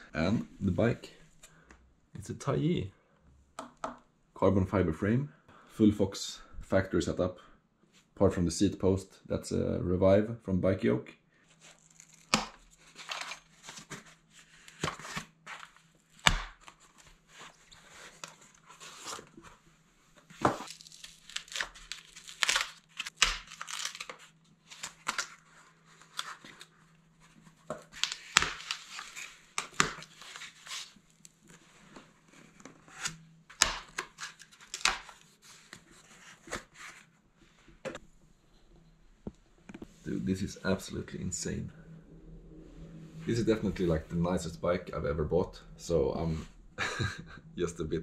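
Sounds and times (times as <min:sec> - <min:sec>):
packing tape tearing: 0:20.6 - 0:25.4.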